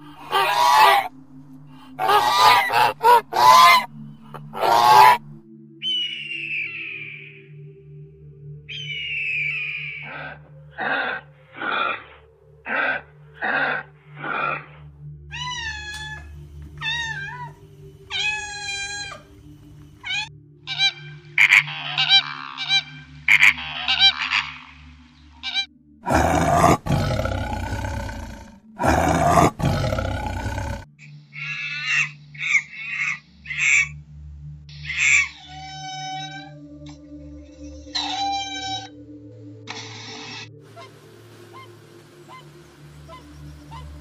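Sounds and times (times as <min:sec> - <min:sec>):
tiger roaring: 0:26.0 - 0:30.9.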